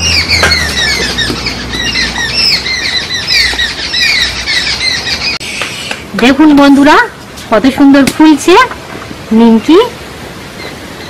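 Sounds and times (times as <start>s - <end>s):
babblers squawking calls: 0.0s - 6.0s.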